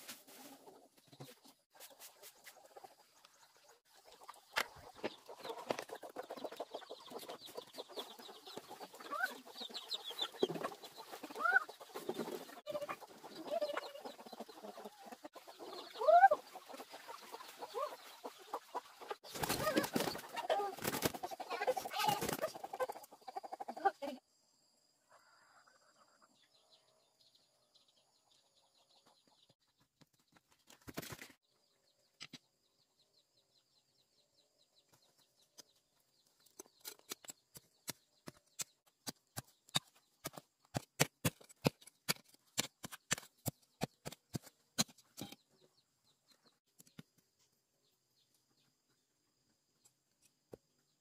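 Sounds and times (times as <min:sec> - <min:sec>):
chicken clucking: 0:00.0 - 0:24.2
digging tool striking stony soil: 0:36.8 - 0:45.4.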